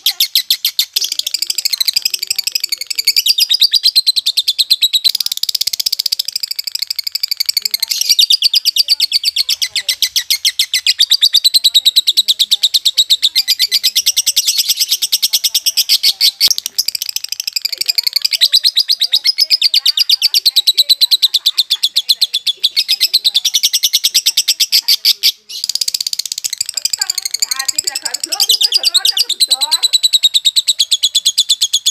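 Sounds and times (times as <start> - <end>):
lovebird chattering: 0.0 - 31.9.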